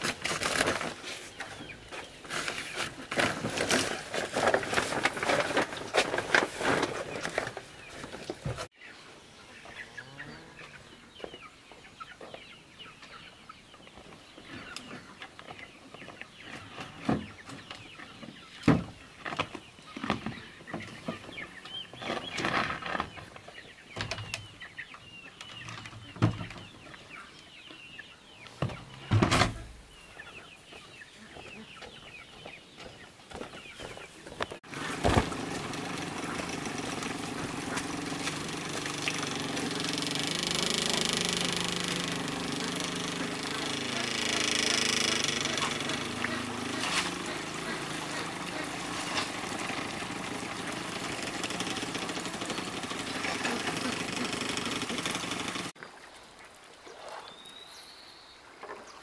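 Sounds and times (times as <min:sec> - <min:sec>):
plastic sack rustling: 0:00.0 - 0:08.7
chickens clucking: 0:00.6 - 0:22.4, 0:23.1 - 0:55.8.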